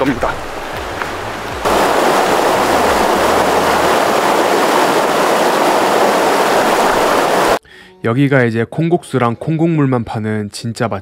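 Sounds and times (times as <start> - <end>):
stream rushing over boulders: 0.0 - 7.6.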